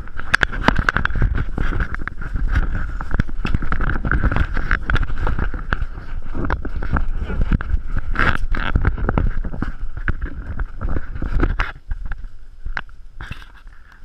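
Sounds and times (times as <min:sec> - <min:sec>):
horse hooves clicking and knocking: 0:00.0 - 0:12.2
brush scraping against rider: 0:00.0 - 0:12.3, 0:13.2 - 0:14.0
camera handling rumble: 0:00.0 - 0:14.0.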